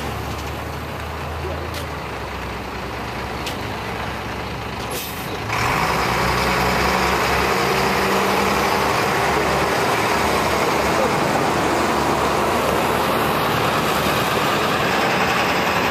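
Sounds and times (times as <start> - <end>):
bus engine and tyres: 0.0 - 15.9
trucks driving on dirt road: 0.0 - 15.9.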